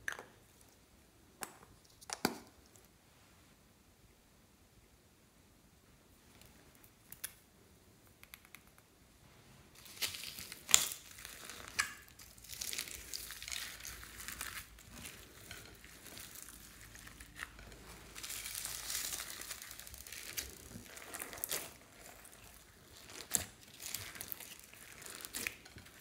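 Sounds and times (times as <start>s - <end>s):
slime crackling and crinkling: 9.7s - 26.0s.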